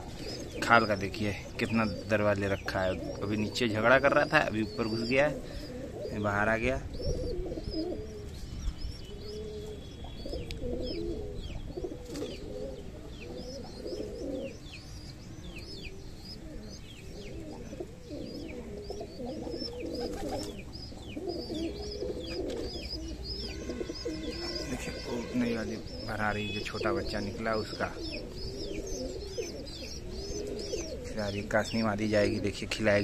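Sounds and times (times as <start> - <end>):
pigeons cooing: 0.0 - 33.0.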